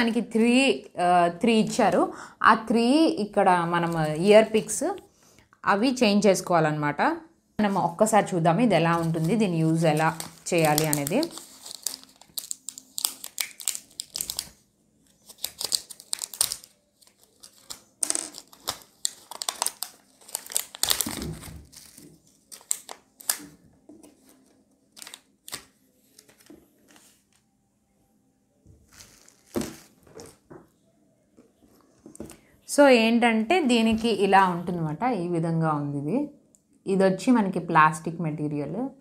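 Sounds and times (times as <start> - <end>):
plastic packaging crinkling: 8.9 - 27.1, 28.8 - 30.4.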